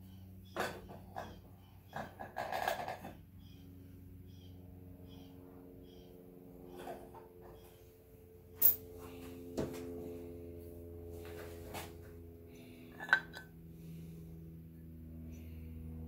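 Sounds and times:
steady background hum: 0.0s - 16.0s
metal parts clanking: 8.6s - 8.8s.

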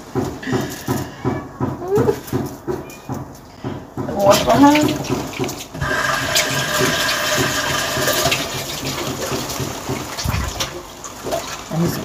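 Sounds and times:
tap water running: 4.1s - 12.0s.

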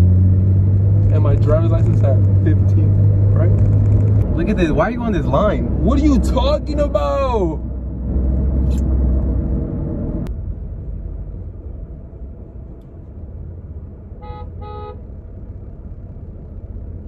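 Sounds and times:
car rumble from inside cabin: 0.0s - 17.0s
car horn beeps: 14.2s - 15.1s.

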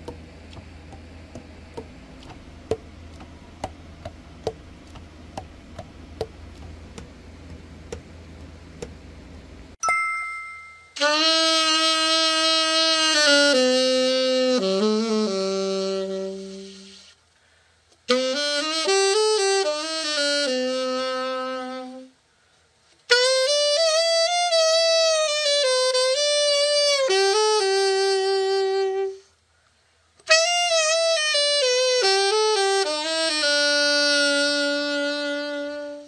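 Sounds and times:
alto saxophone melody: 11.0s - 17.2s, 18.0s - 22.2s, 23.1s - 29.4s, 30.2s - 36.0s.

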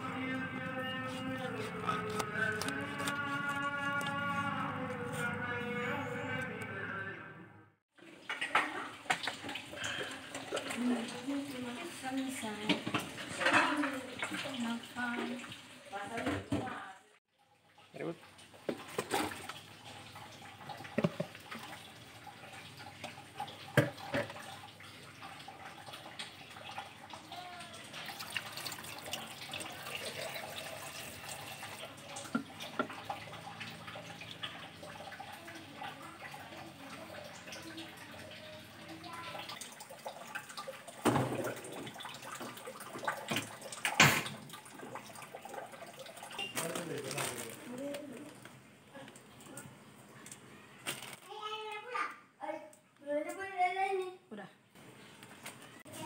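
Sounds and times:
water sloshing in pot: 0.1s - 5.8s, 8.0s - 51.1s.

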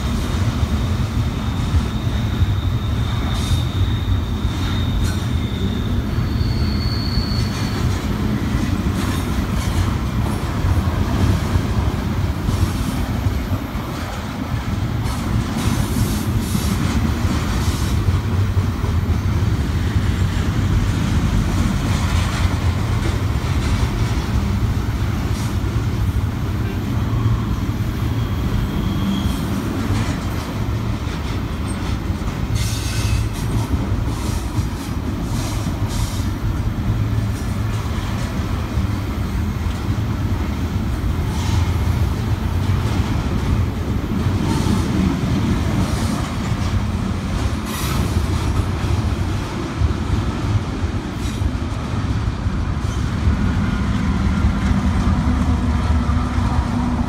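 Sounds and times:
train cars clanking: 0.0s - 57.0s
train wheels rumbling: 0.0s - 57.0s
high wheel squeals: 0.8s - 8.6s, 26.6s - 29.8s, 32.5s - 34.5s.

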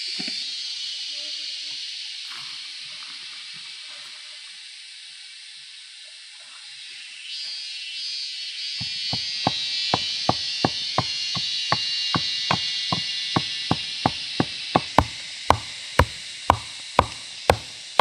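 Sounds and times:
steady high-pitched hiss: 0.0s - 18.0s
bamboo being struck: 8.8s - 18.0s.

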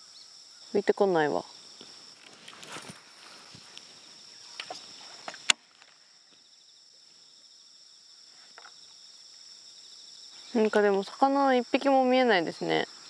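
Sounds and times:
high-pitched insect chorus: 0.0s - 13.0s
sharp loud click: 4.6s - 5.6s.

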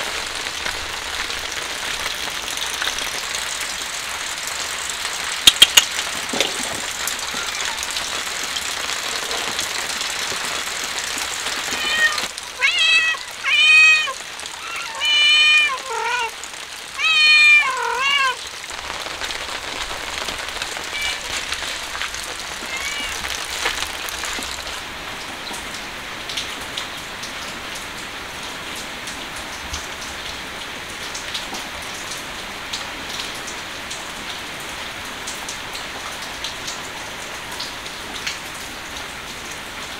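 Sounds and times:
steady rain falling: 0.0s - 39.9s
kitten meowing: 11.6s - 16.4s, 17.0s - 18.4s, 20.6s - 23.6s.

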